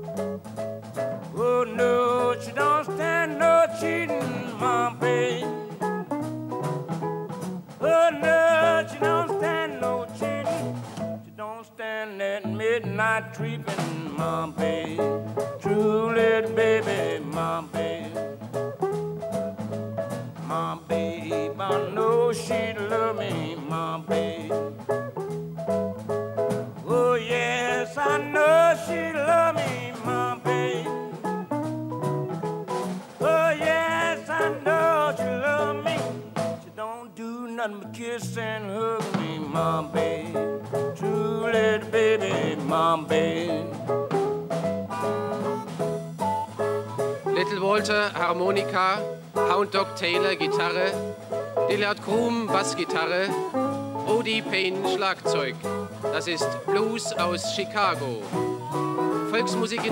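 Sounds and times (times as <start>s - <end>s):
blues harmonica with bent notes: 0.0s - 11.2s, 39.2s - 57.6s, 58.2s - 59.9s
drums: 0.0s - 11.4s, 13.0s - 36.8s, 38.1s - 59.9s
bass guitar: 0.0s - 11.5s, 12.4s - 36.9s, 37.8s - 59.9s
electric guitar: 39.2s - 47.9s, 52.6s - 56.9s, 58.1s - 59.9s.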